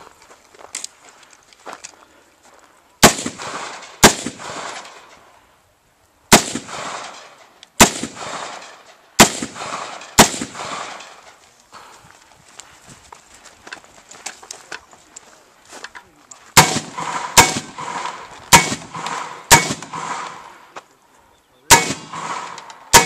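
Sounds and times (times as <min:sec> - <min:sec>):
rifle shots with echo: 0:03.0 - 0:05.2, 0:06.3 - 0:11.4, 0:16.5 - 0:20.8, 0:21.7 - 0:23.0.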